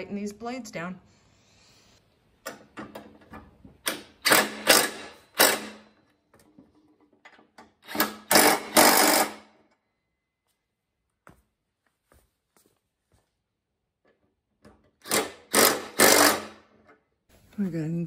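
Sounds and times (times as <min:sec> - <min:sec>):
impact tool rapid hammering: 0:15.1 - 0:16.6.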